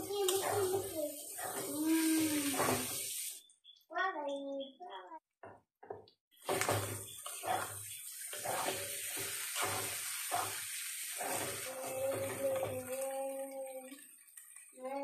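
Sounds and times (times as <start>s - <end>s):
tripe sizzling in oil: 0.0s - 3.5s, 6.4s - 14.8s
metal spatula scraping wok: 0.3s - 3.2s, 6.5s - 12.4s.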